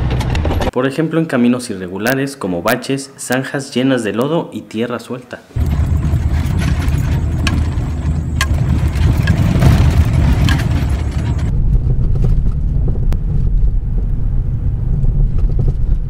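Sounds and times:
car rumbling on rough dirt road: 0.0s - 0.7s, 5.6s - 16.0s
suspension knocking: 5.6s - 11.6s.

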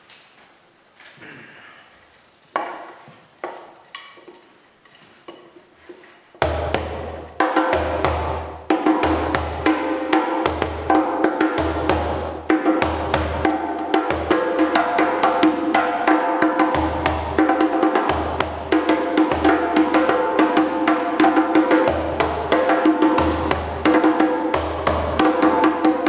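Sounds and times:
djembe slaps and bass notes: 6.4s - 26.0s.

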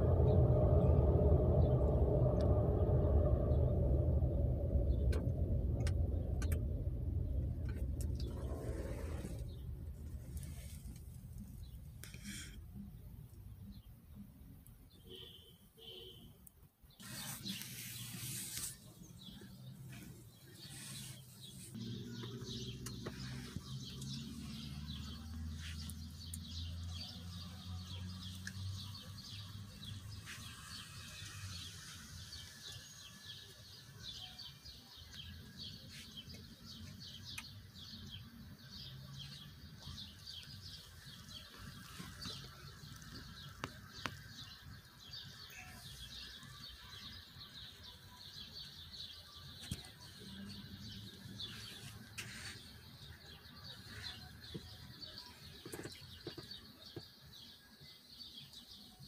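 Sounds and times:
low rumble of traffic: 0.0s - 59.0s
birds chirping: 16.9s - 59.0s.

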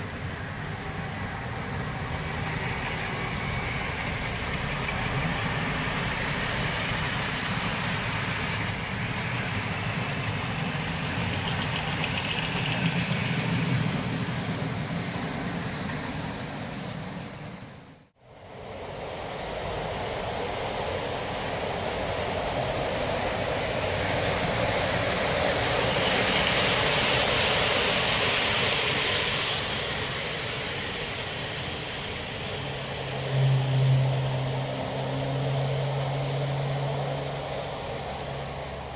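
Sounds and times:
model train wheels on track: 0.0s - 18.1s, 19.6s - 33.5s
low steady hum: 32.6s - 38.9s.

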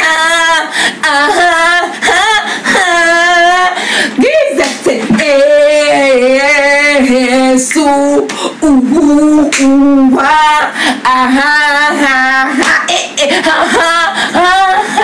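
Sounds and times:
woman singing with vibrato: 0.0s - 15.0s
woman breathing: 0.7s - 1.0s, 3.8s - 4.2s, 8.3s - 8.6s, 10.7s - 11.0s.

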